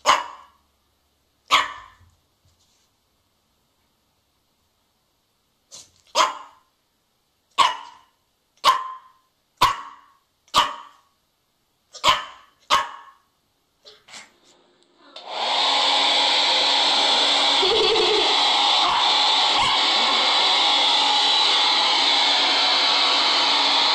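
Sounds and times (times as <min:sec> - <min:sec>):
puppy barking: 0:00.0 - 0:00.6, 0:01.5 - 0:02.0, 0:06.1 - 0:06.7, 0:07.6 - 0:11.1, 0:11.9 - 0:13.3
hair dryer blowing: 0:15.2 - 0:23.9.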